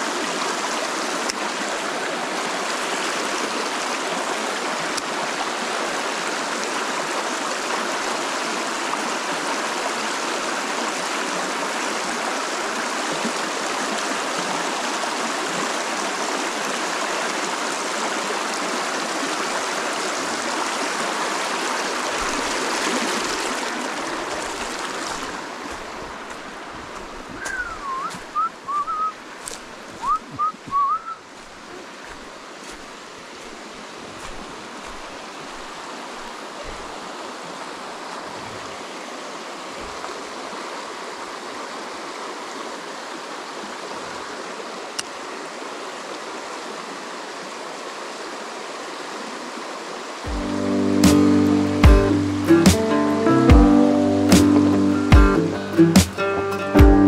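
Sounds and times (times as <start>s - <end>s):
creek water rushing: 0.0s - 57.0s
short whistled notes: 27.4s - 29.2s, 30.0s - 31.2s.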